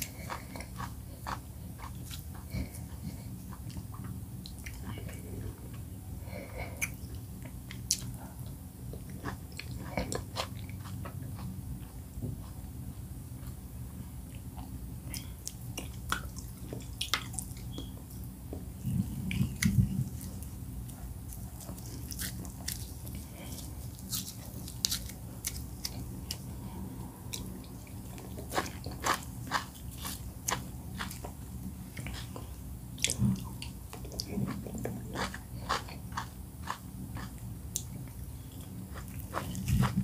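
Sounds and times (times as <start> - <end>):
steady low hum: 0.0 - 40.0
wet chewing clicks and smacks: 14.3 - 18.0.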